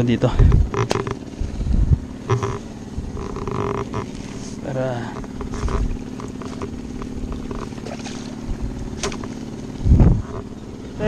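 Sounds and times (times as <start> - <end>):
small engine running: 0.0 - 11.0
handling knocks and clicks: 0.5 - 1.2, 2.2 - 2.6, 3.2 - 4.2, 5.1 - 7.8.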